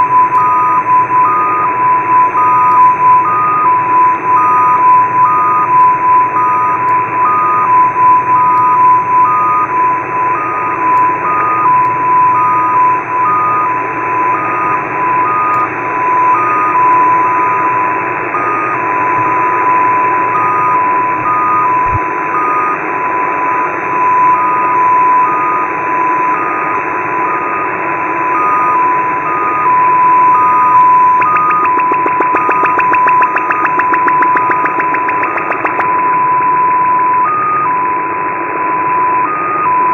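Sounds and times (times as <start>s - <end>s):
fast ticking data signal: 0.0s - 17.6s, 29.7s - 36.0s
beeping tone: 29.7s - 36.7s
steady radio tone: 30.1s - 36.2s.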